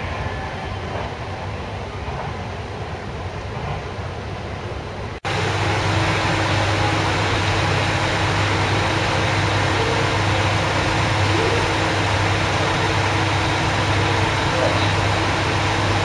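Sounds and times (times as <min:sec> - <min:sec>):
diesel engine idling: 0:05.2 - 0:16.0.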